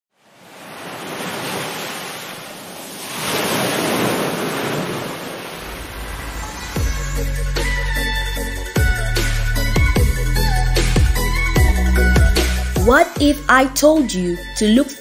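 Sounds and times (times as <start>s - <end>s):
waves breaking: 0.1s - 7.8s.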